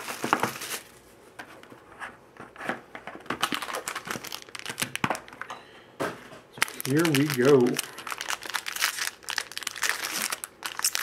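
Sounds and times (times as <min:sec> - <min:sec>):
plastic wrapper crinkling and tearing: 0:00.0 - 0:01.0, 0:03.4 - 0:05.5, 0:06.6 - 0:11.0.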